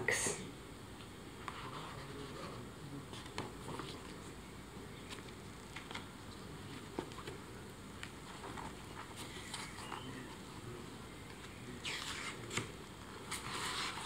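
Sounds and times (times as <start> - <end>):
book pages turning: 3.1 - 14.0.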